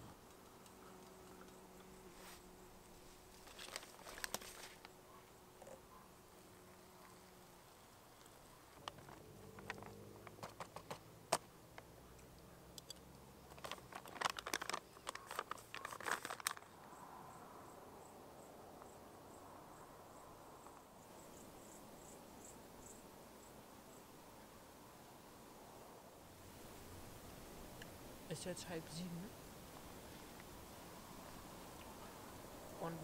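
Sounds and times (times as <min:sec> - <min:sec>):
foil pouch crinkling: 0:03.3 - 0:04.9, 0:13.5 - 0:16.7
insect chirping: 0:16.8 - 0:24.2.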